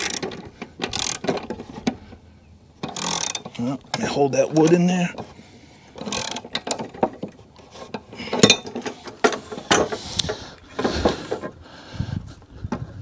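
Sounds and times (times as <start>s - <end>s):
ratchet wrench clicking: 0.9s - 1.2s, 2.9s - 3.4s, 6.0s - 6.5s
metal clanks: 6.0s - 11.5s.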